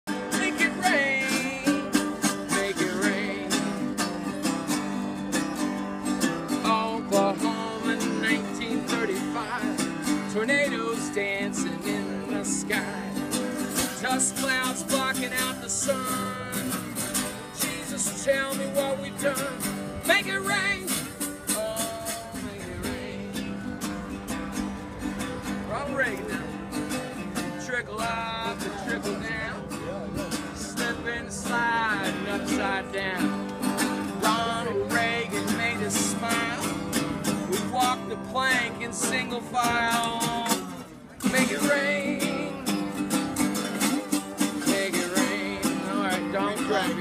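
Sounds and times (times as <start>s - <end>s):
acoustic guitar strumming: 0.1s - 47.0s
voices: 25.0s - 47.0s.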